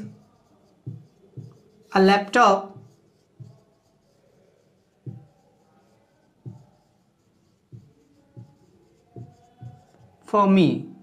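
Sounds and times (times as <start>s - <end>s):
marker pen knocking on whiteboard: 0.0s - 1.8s, 2.6s - 3.8s, 4.8s - 10.0s
marker scratching on whiteboard: 0.0s - 11.0s.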